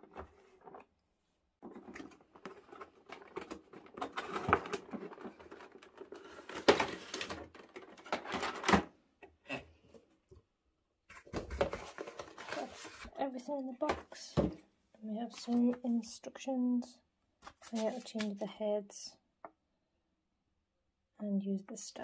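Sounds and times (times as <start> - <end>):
plastic tray scraping cardboard: 1.6 - 8.7, 11.1 - 13.2.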